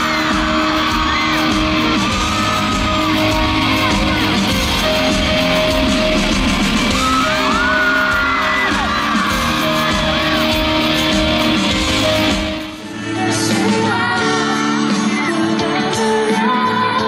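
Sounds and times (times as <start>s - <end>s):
audience yelling and whooping: 0.0s - 16.4s
live rock band music: 0.0s - 17.0s
man singing slow pop song: 12.8s - 17.0s.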